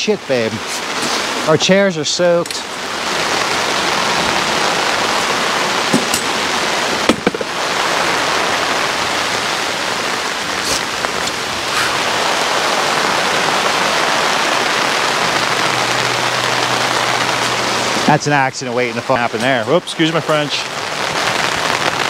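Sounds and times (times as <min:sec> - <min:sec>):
heavy rain on fabric canopy: 0:00.0 - 0:22.0
folding chairs knocking: 0:05.9 - 0:06.3, 0:07.0 - 0:07.5.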